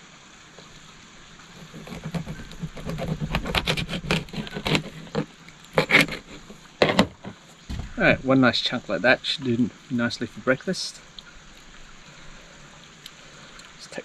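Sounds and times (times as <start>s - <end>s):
knife sawing through fish: 1.6s - 7.0s
louder knocks: 6.8s - 8.0s.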